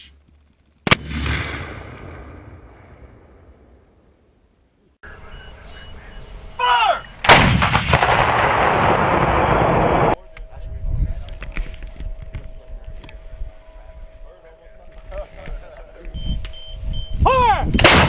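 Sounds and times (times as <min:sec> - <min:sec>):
artillery blast: 0:00.8 - 0:03.9, 0:07.2 - 0:10.2, 0:17.8 - 0:18.0
gunshot rumble and echo: 0:00.8 - 0:04.0, 0:07.2 - 0:10.2, 0:17.8 - 0:18.0.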